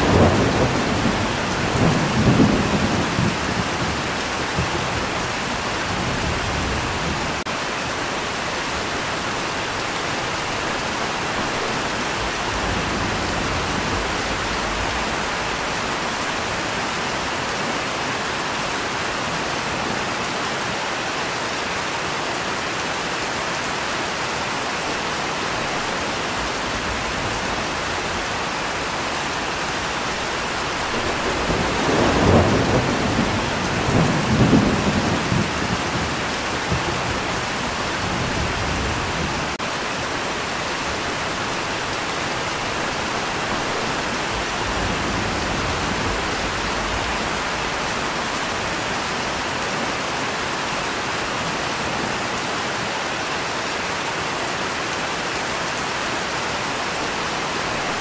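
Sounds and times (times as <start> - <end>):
thunder rumbling: 0.0 - 7.4, 10.4 - 17.4, 25.6 - 39.6, 42.6 - 49.1
steady rain: 0.0 - 58.0.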